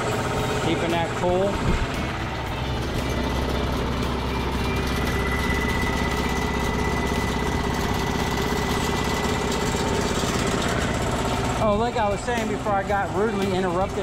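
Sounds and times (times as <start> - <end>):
air compressor running: 0.0 - 14.0.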